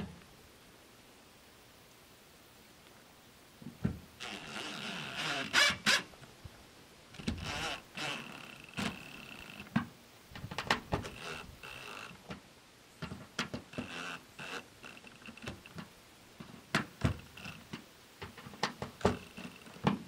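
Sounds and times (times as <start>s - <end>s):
cordless drill driving screws: 4.2s - 6.1s, 7.2s - 9.8s, 11.0s - 12.2s, 13.7s - 15.7s.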